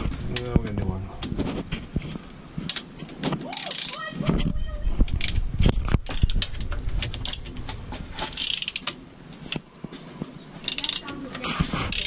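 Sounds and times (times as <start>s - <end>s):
socket ratchet clicking: 6.1s - 6.5s, 7.2s - 7.4s, 8.3s - 9.6s, 10.7s - 11.1s.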